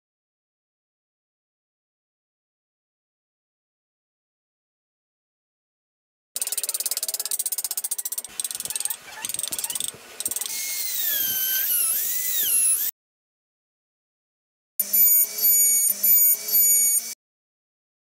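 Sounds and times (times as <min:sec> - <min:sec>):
rotary tool drilling wood: 0:06.4 - 0:12.9, 0:14.8 - 0:17.2.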